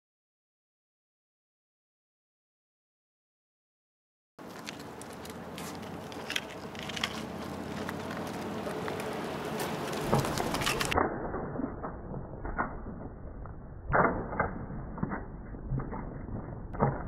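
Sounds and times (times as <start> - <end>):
bike tyres rolling on asphalt: 4.4 - 11.0
grit clicking and crackling: 4.4 - 11.0.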